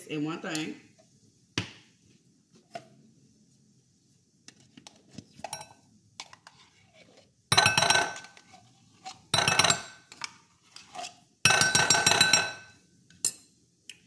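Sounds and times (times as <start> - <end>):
metal spoon scraping tin can: 8.2 - 11.2.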